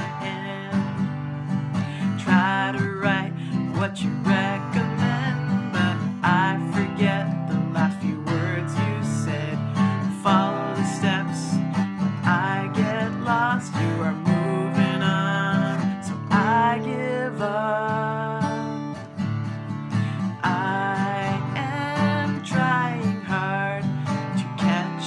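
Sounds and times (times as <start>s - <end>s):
acoustic guitar strumming: 0.0s - 25.0s.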